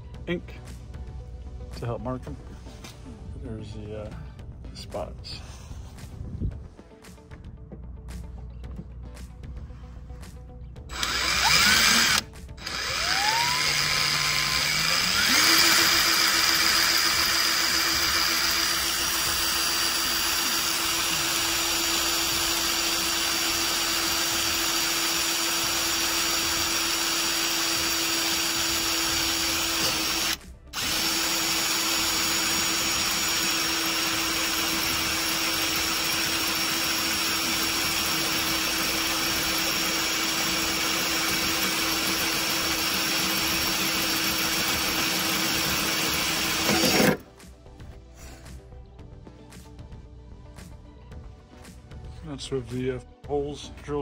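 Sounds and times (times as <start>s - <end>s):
power drill boring through metal: 10.9s - 47.2s.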